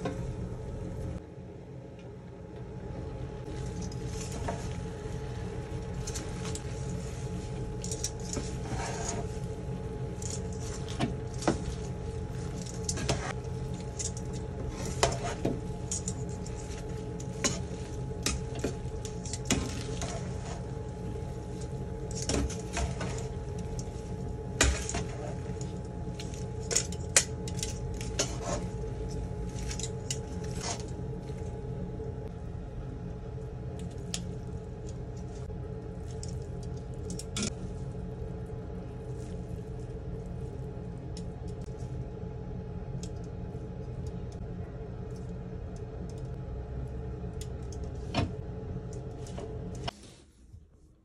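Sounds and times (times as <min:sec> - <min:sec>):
steady low hum: 0:00.0 - 0:51.0
tongs clinking and scraping pan: 0:03.5 - 0:04.9, 0:05.7 - 0:31.4.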